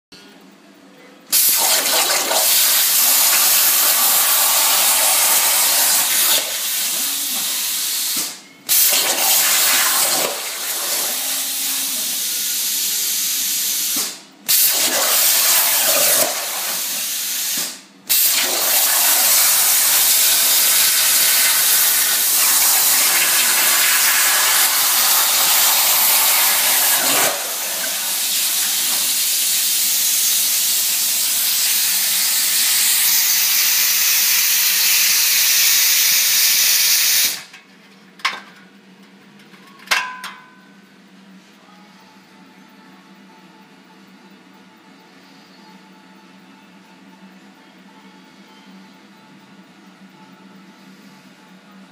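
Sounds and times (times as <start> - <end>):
plasma torch hissing: 1.3 - 37.4.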